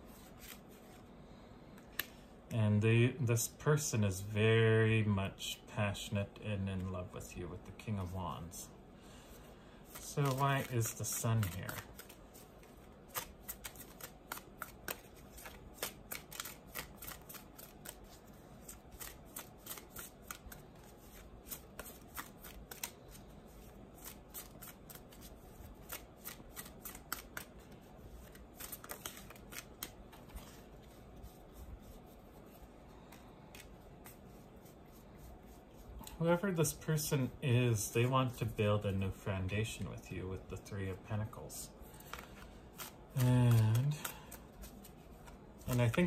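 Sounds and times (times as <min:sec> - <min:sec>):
cards being shuffled: 0:00.0 - 0:01.1, 0:01.7 - 0:02.2, 0:09.4 - 0:35.9, 0:41.8 - 0:46.0.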